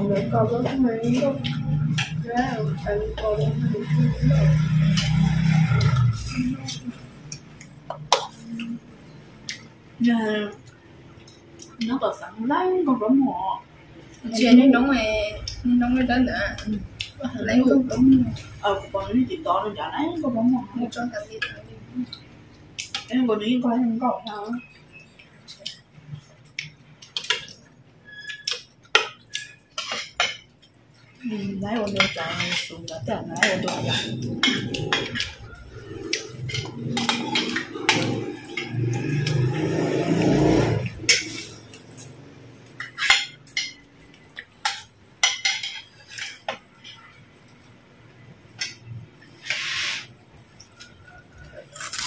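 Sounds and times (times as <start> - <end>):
spoons clinking on ceramic bowls: 26.6 - 39.7, 42.7 - 47.2
spoons clinking on ceramic: 42.7 - 46.6.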